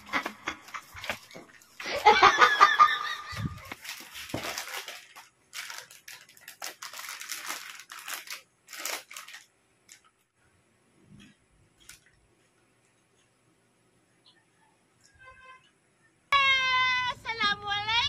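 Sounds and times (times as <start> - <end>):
plastic snack bag crinkling: 3.0 - 10.3, 11.8 - 12.2.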